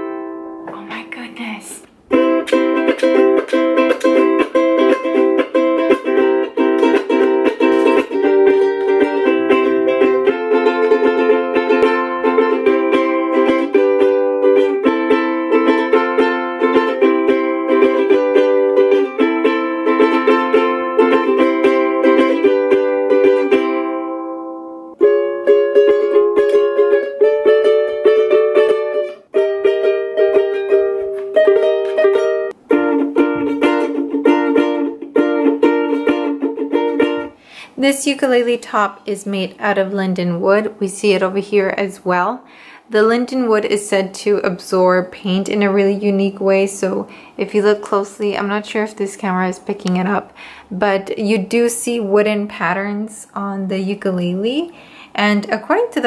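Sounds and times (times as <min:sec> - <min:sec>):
ukulele strumming chords: 0:00.0 - 0:38.8.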